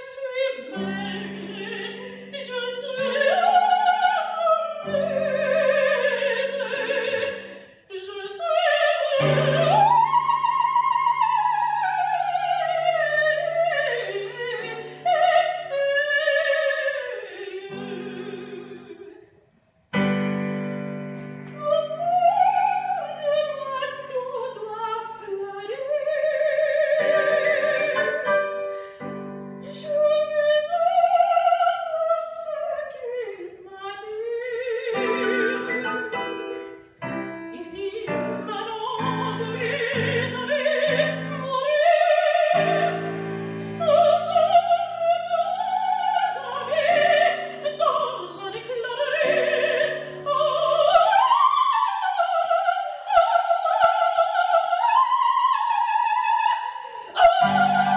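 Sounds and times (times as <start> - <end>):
soprano singing operatic aria: 0.0 - 19.4, 20.0 - 57.9
piano chords: 19.9 - 23.3, 26.8 - 30.6, 34.6 - 52.0, 57.2 - 57.9.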